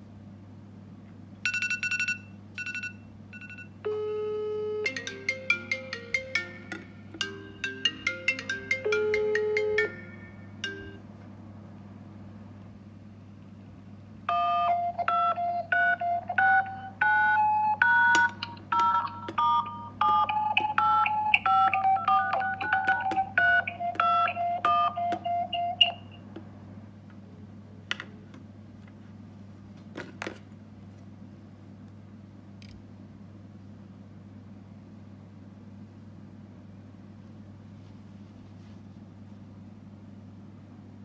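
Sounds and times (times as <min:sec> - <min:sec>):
keypad touch tone beeps: 0:01.5 - 0:05.0, 0:14.3 - 0:26.2.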